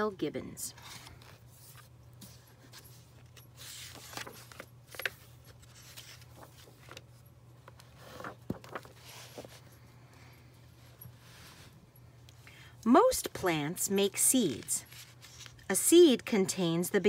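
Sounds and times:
book pages turning: 0.8s - 9.7s, 14.5s - 15.7s.

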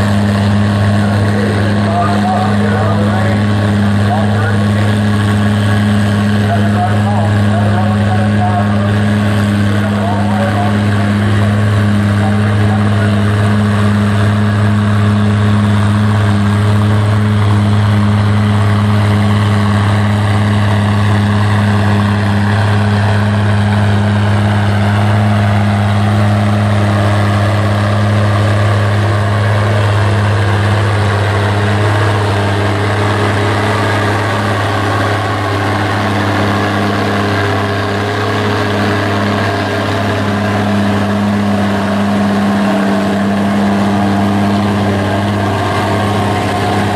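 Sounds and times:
diesel tractor engine under load: 0.0s - 46.9s.

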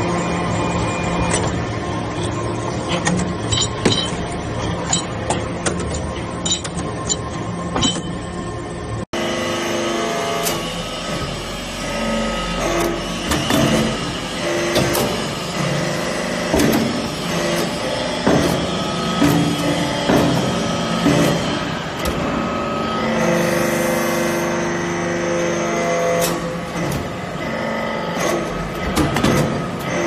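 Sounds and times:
motor and pump hum: 0.0s - 30.0s
metallic clanks and knocks: 2.9s - 8.2s.

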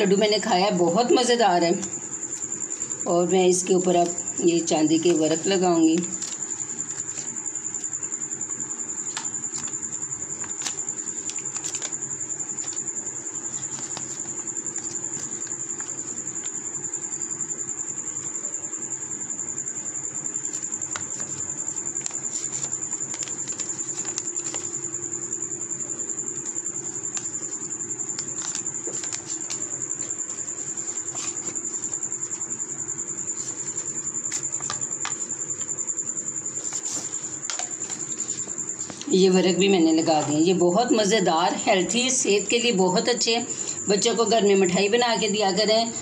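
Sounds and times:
paper crinkling and clicking: 4.9s - 8.0s, 9.0s - 16.6s, 20.5s - 24.9s, 26.4s - 32.4s, 33.2s - 35.8s, 36.5s - 39.1s.

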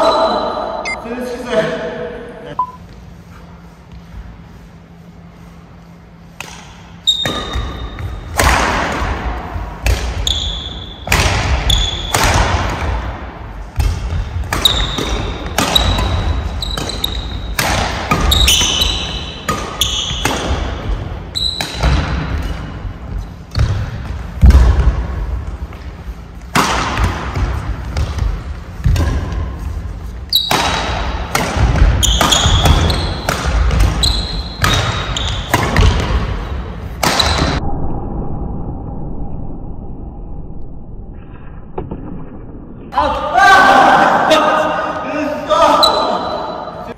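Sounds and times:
court shoes squeaking: 6.2s - 8.3s, 9.9s - 12.4s, 13.8s - 24.4s, 27.0s - 37.6s, 45.7s - 46.9s
racket striking shuttlecock: 6.4s - 10.2s, 13.8s - 20.8s, 26.5s - 29.5s, 30.3s - 37.6s.

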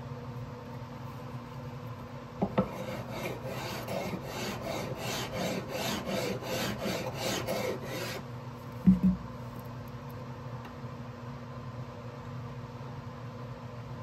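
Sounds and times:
sandpaper rubbing on wood: 2.7s - 8.2s.

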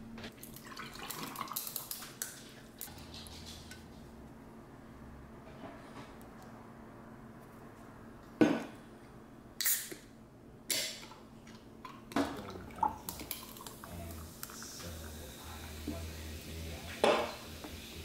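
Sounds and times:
can opening hiss: 9.6s - 10.0s.

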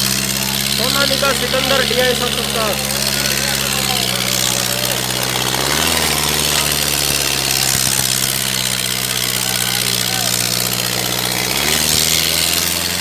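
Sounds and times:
tractor diesel engine under load: 0.0s - 13.0s.

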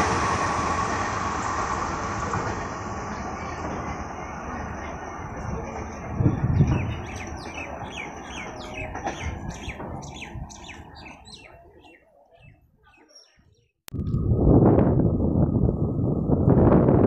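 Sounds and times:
bird chirping: 6.3s - 13.7s
low rumble: 13.9s - 17.0s.

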